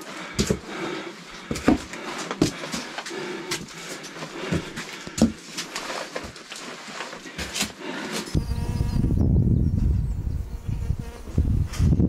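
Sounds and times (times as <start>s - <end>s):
footsteps on rocky trail: 0.0s - 8.4s
soft rustle: 4.0s - 8.2s.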